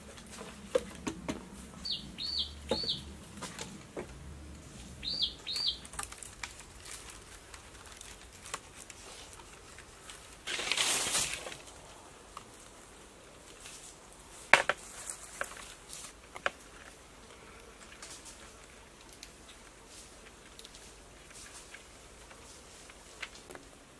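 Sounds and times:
small bird chirping: 1.8s - 3.1s, 5.0s - 5.9s
bamboo poles scraping: 2.7s - 11.9s, 13.5s - 17.0s.

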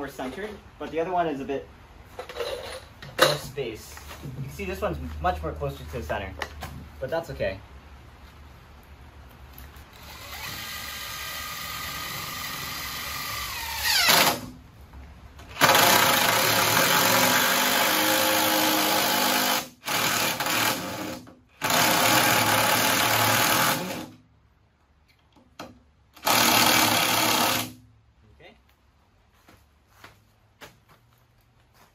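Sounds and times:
impact driver driving screws: 9.9s - 14.5s, 15.5s - 24.1s, 26.2s - 27.8s.

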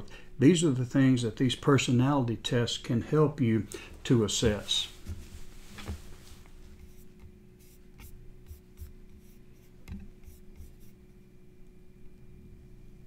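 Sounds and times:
steady low hum: 0.0s - 13.0s
faint scratching and tapping: 4.4s - 11.2s.

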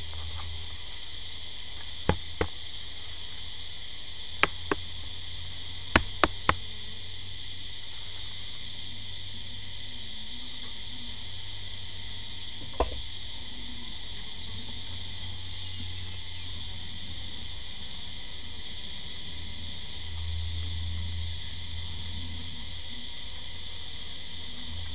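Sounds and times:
insects droning: 0.0s - 24.9s
knock on wooden box: 2.1s - 2.6s, 4.4s - 4.8s, 6.0s - 6.6s, 12.6s - 13.0s.

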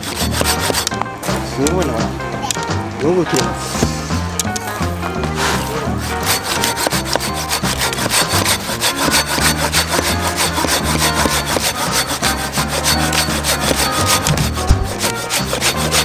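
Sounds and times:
pull saw cutting through log: 0.0s - 1.9s, 5.3s - 16.0s.

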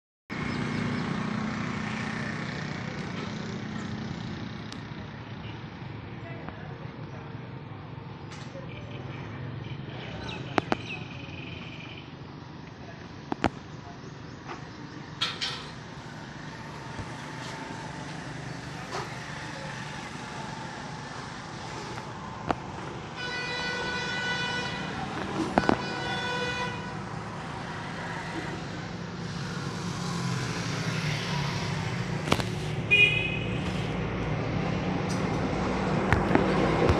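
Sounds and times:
street traffic noise: 0.3s - 36.9s
engine rumble: 12.6s - 23.2s, 24.6s - 36.9s
vehicle horn: 23.1s - 27.1s, 32.9s - 33.9s.

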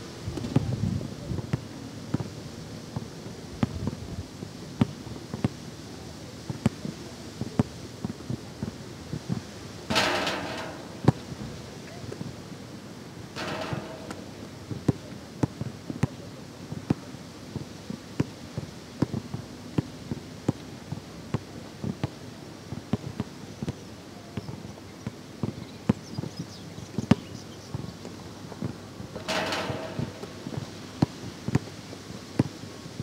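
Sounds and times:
basketball bouncing on hard court: 29.2s - 31.6s.

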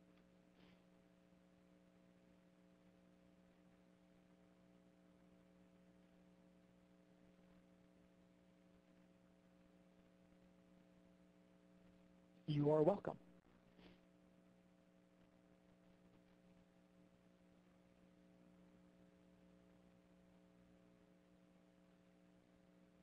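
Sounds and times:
faint electrical hum: 0.0s - 23.0s.

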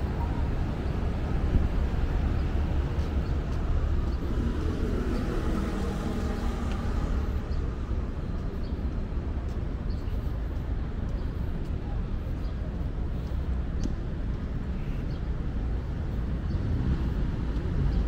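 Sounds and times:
urban traffic rumble: 0.0s - 18.0s
vehicle engine hum: 0.0s - 18.0s.

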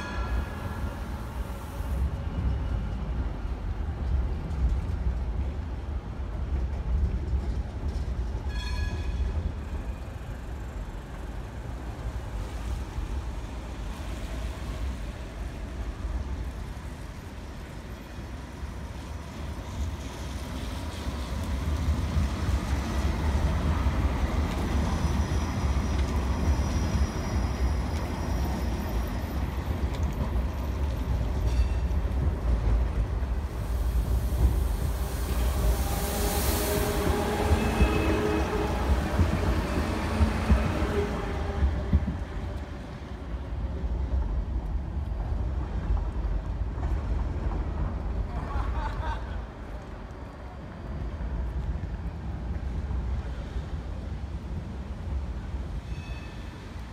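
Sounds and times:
tram wheels rumbling on rails: 0.0s - 56.9s
high wheel squeal: 24.8s - 29.6s, 35.3s - 38.9s, 55.8s - 56.7s.

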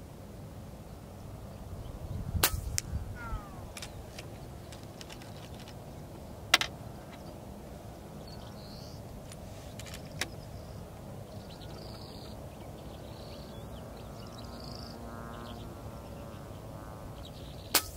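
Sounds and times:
outdoor background noise: 0.0s - 17.9s
air rifle shot: 2.4s - 4.0s
faint bird chirps: 3.2s - 5.4s, 8.2s - 9.0s, 9.6s - 16.6s.

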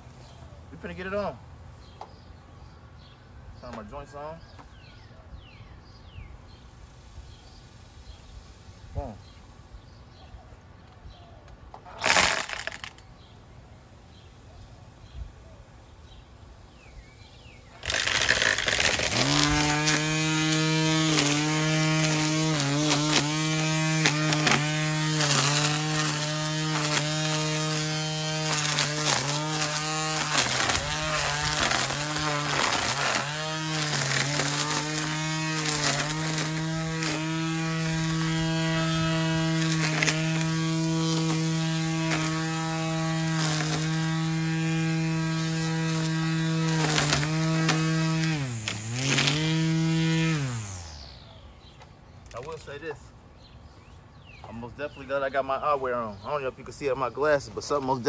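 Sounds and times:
string trimmer whining: 11.7s - 13.4s, 17.7s - 53.8s.

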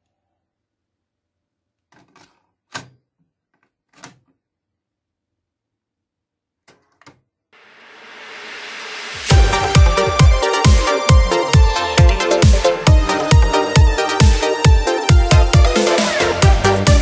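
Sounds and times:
tape hiss: 7.6s - 11.0s.

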